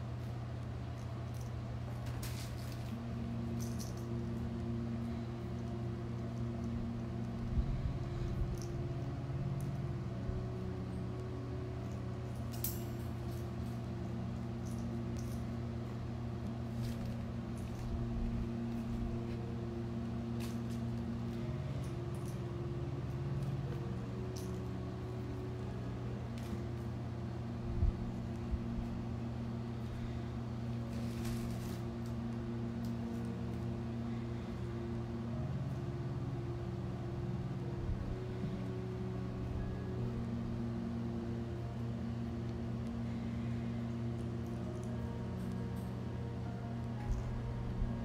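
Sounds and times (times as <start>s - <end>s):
faint steady tones: 0.0s - 48.0s
steady low hum: 0.0s - 48.0s
kittens scampering on tile floor: 0.2s - 4.1s, 30.9s - 32.1s.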